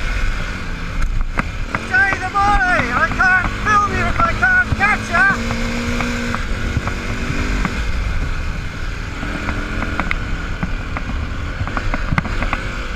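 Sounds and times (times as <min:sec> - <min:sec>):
dirt bike engine running: 0:00.0 - 0:12.9
wind rumble on microphone: 0:05.4 - 0:12.9.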